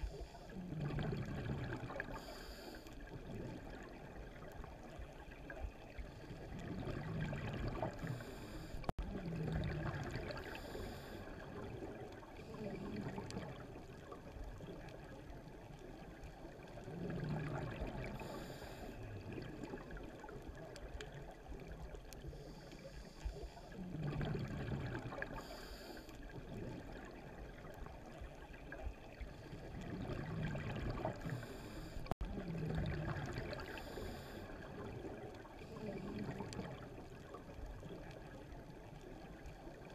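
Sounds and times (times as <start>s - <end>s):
steady water hiss: 0.0s - 39.9s
diver exhaling bubbles: 0.6s - 2.2s, 6.4s - 13.7s, 16.8s - 18.5s, 23.8s - 25.6s, 29.5s - 37.3s.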